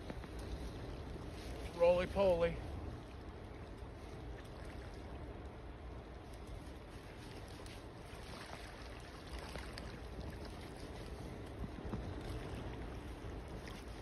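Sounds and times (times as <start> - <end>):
river water: 0.0 - 14.0
wind on microphone: 0.0 - 14.0.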